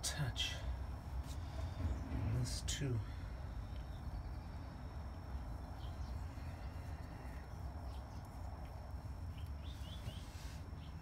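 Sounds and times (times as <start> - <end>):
steady low rumble: 0.0 - 11.0
bird chirps: 3.5 - 8.4, 9.2 - 11.0.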